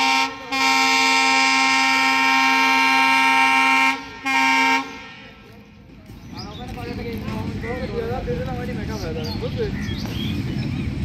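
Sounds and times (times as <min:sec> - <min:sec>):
locomotive horn blasts: 0:00.0 - 0:05.5.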